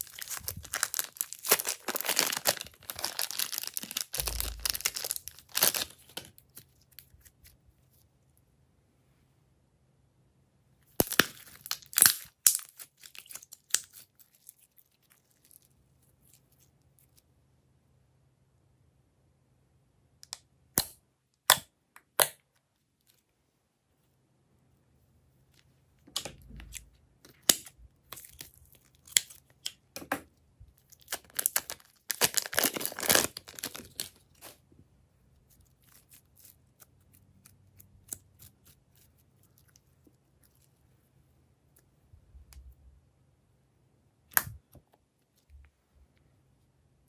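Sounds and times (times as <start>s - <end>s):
slime squeezed from plastic bag: 0.0s - 6.1s, 31.1s - 34.6s
plastic bag crinkling: 0.0s - 6.4s, 30.9s - 34.6s.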